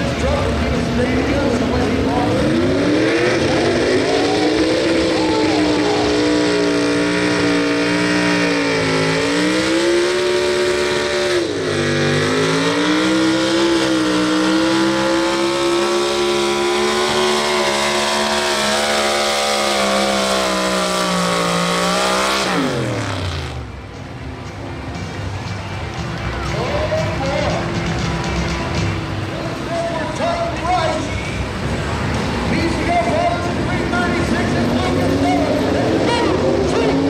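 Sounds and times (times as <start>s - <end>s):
truck engine revving under load: 0.0s - 24.0s.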